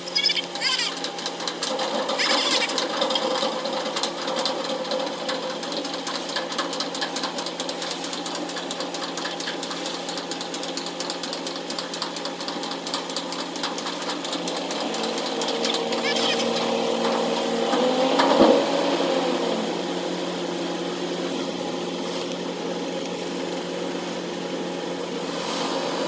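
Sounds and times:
diesel engine knocking: 0.4 - 21.7.

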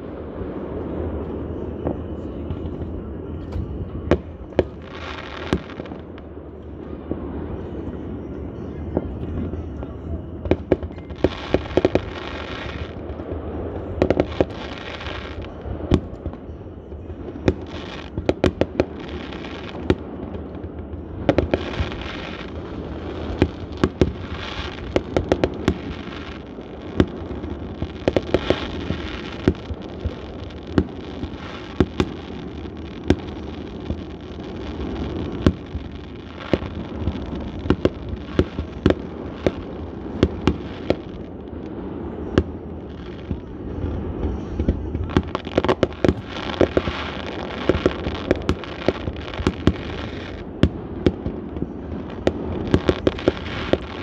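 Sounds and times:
fireworks bangs: 0.0 - 54.0
fireworks hissing crackle: 0.0 - 54.0.

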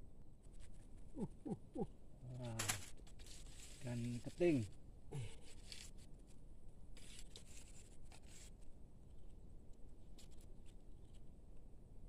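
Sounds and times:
scratchy rustling and handling: 2.3 - 9.4, 10.0 - 11.3.

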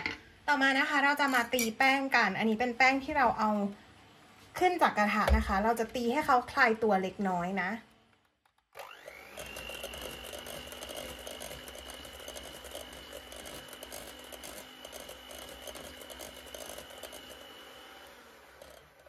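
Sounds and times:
beater clicking in dough: 8.5 - 19.0
electric mixer motor whine: 8.7 - 19.0.

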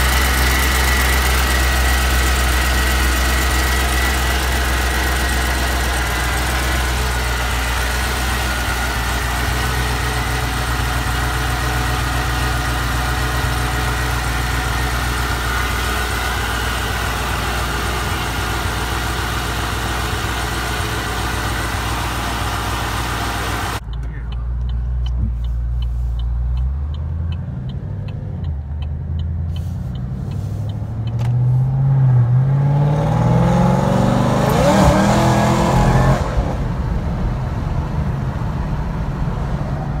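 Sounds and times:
car engine idling and revving: 0.0 - 40.0
light ticking: 23.8 - 31.3.

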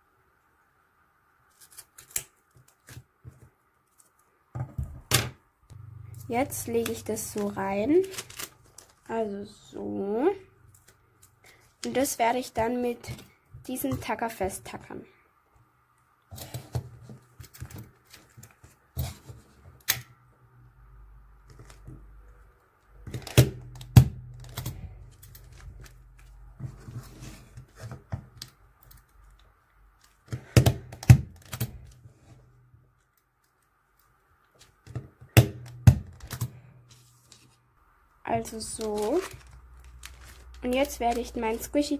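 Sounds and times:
soft handling noises: 6.0 - 9.4, 24.4 - 30.6, 36.3 - 37.8, 38.4 - 41.9.

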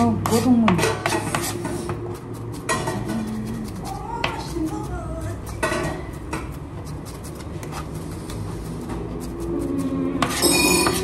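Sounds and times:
knife chopping on plastic board: 0.1 - 7.8.

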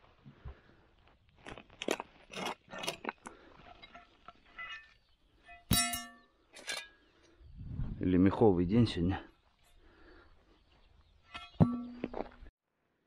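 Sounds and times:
shovel scraping stony soil: 1.4 - 5.7
metallic clang of iron plate: 5.6 - 7.0.

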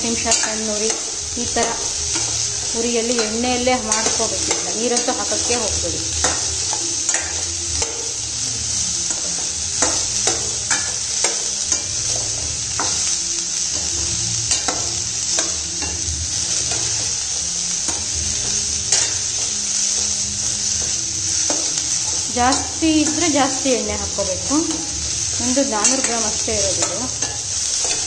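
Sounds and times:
metal spatula scraping a pan: 0.0 - 28.0
vegetables sizzling in oil: 0.0 - 28.0.

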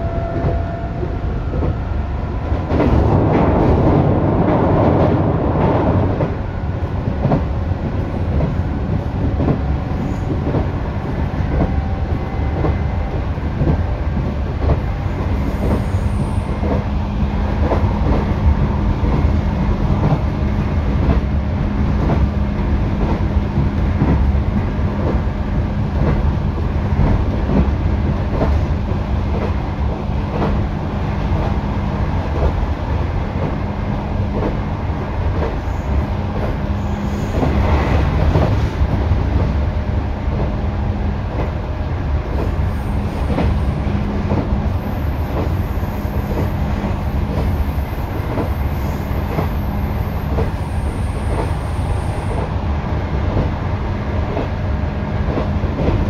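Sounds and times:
electric train running on rails: 0.0 - 56.0
rail-joint clicks: 2.4 - 16.9, 42.3 - 51.6.

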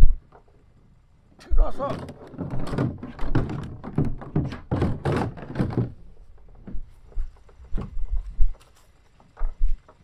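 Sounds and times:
plastic kayak hull knocking: 2.0 - 6.0.

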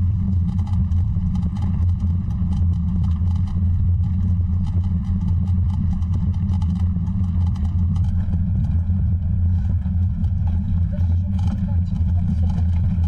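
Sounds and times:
wind rumbling on microphone: 0.0 - 13.0
rapid rattling clicks: 0.3 - 9.0.

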